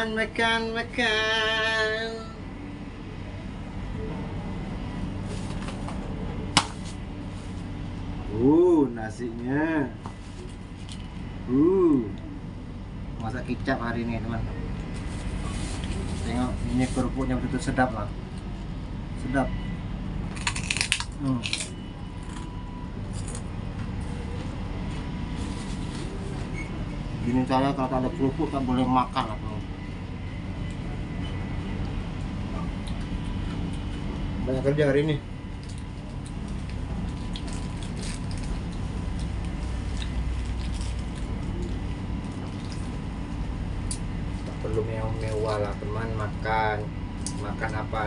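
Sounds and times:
low hum: 0.0s - 48.0s
cracker crunching while chewed: 20.3s - 23.6s, 32.6s - 34.4s, 35.4s - 45.8s.

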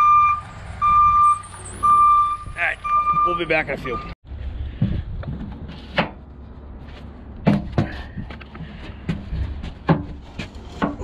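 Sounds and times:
sharp knocks and clunks: 4.8s - 6.3s, 7.4s - 11.0s.

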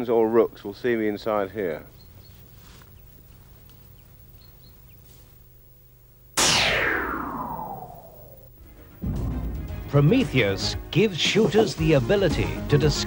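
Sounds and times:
bird chirps: 1.8s - 5.1s
synthesized whoosh gliding down: 6.4s - 9.6s.

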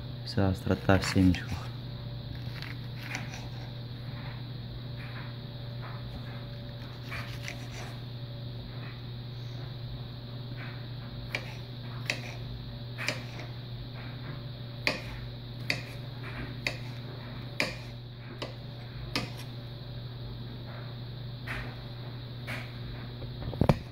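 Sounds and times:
steady low hum: 0.0s - 23.9s
knife chopping on cutting board: 11.3s - 12.4s, 13.0s - 13.5s, 14.8s - 16.0s, 16.6s - 17.0s, 17.6s - 19.5s.

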